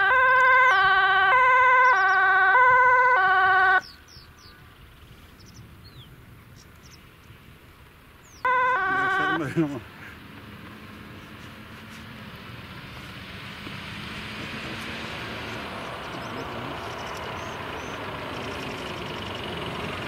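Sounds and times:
fire engine two-tone siren: 0:00.0 - 0:03.9, 0:08.4 - 0:09.8.

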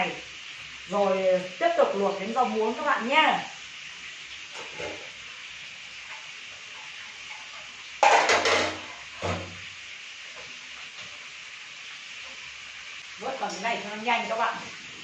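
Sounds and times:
sizzling hiss: 0:00.0 - 0:15.0
metal kitchenware clattering: 0:08.0 - 0:09.6.

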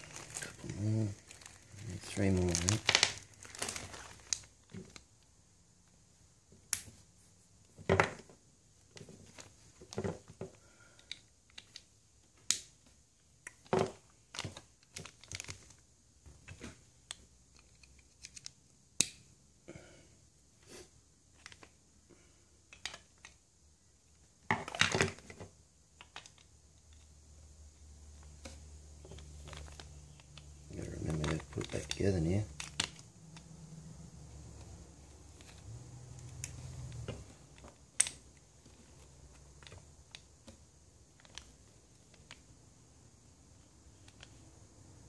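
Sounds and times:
plastic bag crinkling: 0:00.0 - 0:05.0, 0:14.2 - 0:15.8, 0:29.1 - 0:33.1
plastic parts clicking and tapping: 0:07.8 - 0:19.2, 0:21.3 - 0:21.8, 0:22.7 - 0:23.4, 0:24.1 - 0:27.2, 0:28.2 - 0:33.5, 0:36.2 - 0:42.5.

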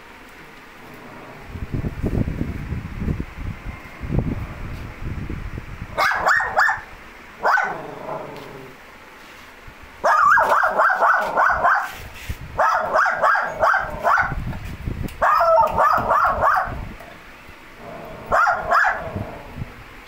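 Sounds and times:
dog yapping: 0:06.0 - 0:08.5, 0:10.0 - 0:12.0, 0:12.6 - 0:14.4, 0:15.2 - 0:16.8, 0:18.3 - 0:19.2.

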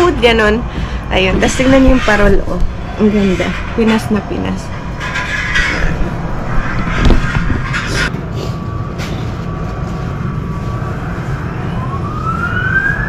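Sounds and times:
low rumble: 0:00.0 - 0:12.6
siren rising in pitch: 0:08.5 - 0:13.0.

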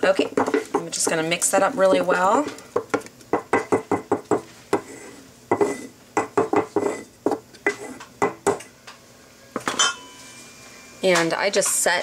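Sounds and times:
spoon stirring thick dough: 0:00.1 - 0:08.6.

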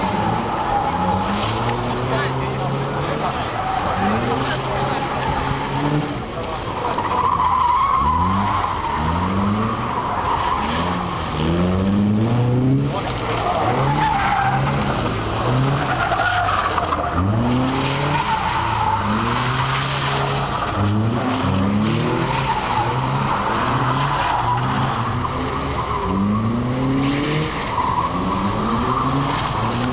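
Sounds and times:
car engine revving: 0:00.0 - 0:29.9
tyres squealing: 0:12.8 - 0:26.7.

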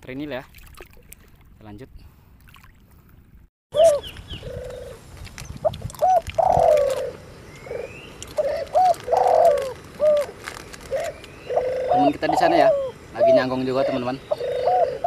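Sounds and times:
doves cooing: 0:03.8 - 0:05.1, 0:06.0 - 0:15.0.

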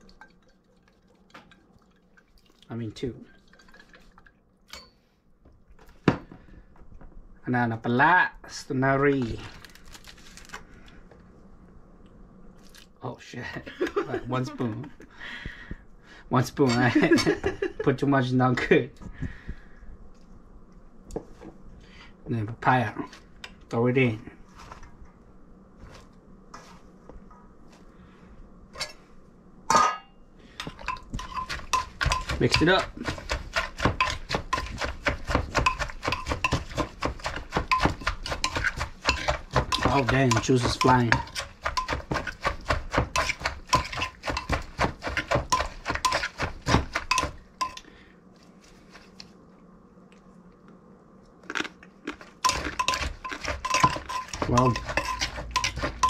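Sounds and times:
faint room hum: 0:00.0 - 0:56.0
shredded papaya rustling: 0:09.1 - 0:10.7, 0:31.2 - 0:47.4, 0:52.1 - 0:56.0
pestle pounding in mortar: 0:31.0 - 0:47.8, 0:52.4 - 0:56.0.

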